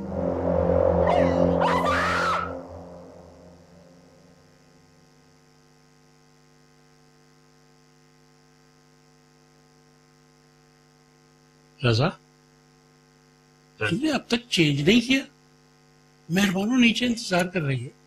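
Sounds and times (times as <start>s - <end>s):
music: 0.0s - 3.8s
faint electrical mains hum: 0.1s - 18.0s.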